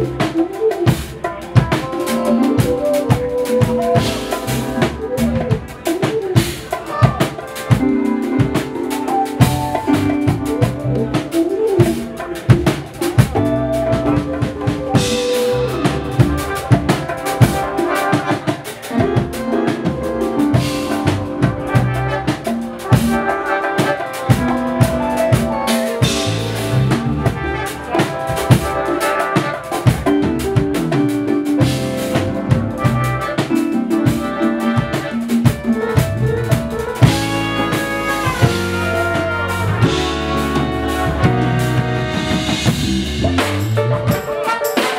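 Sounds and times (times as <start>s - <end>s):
hand percussion: 0.0s - 32.6s
bass: 0.0s - 44.6s
drum kit: 0.0s - 44.9s
electric guitar: 0.0s - 44.9s
horns: 0.0s - 44.9s.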